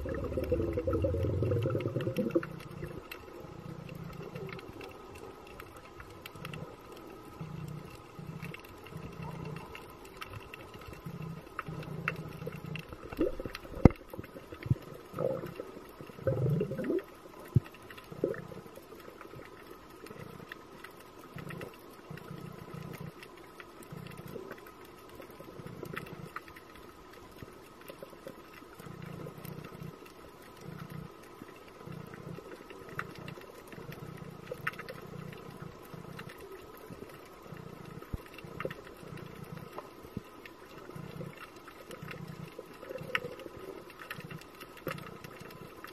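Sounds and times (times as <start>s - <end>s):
gurgling sweep: 0.0s - 2.6s
low underwater rumbles: 0.0s - 26.8s
underwater hum: 0.0s - 45.9s.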